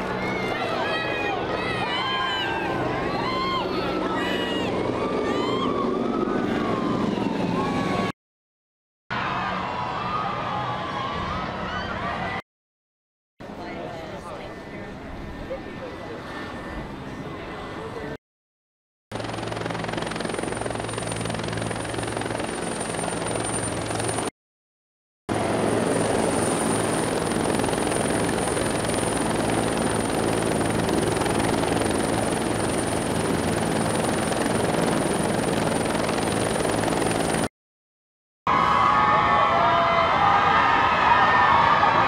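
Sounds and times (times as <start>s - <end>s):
helicopter flying past: 0.0s - 8.1s, 19.1s - 24.3s, 25.3s - 37.5s.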